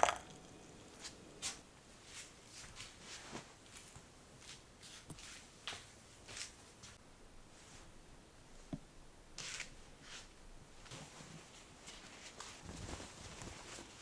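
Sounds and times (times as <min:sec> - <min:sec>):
clothing rustling: 0:00.9 - 0:07.9, 0:09.4 - 0:14.0.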